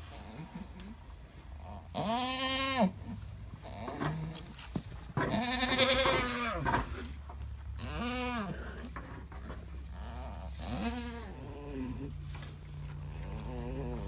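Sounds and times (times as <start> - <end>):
goat bleating: 1.8 - 4.6, 5.2 - 9.0, 9.9 - 14.0.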